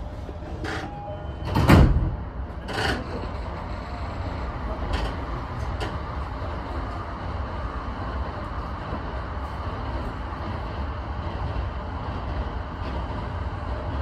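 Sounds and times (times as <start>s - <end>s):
train humming: 0.0s - 14.0s
train doors closing thud: 0.4s - 3.4s.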